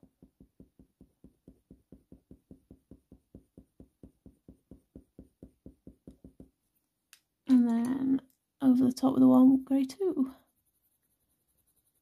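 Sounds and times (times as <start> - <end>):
pencil strokes on paper: 0.1 - 6.7, 9.1 - 12.0.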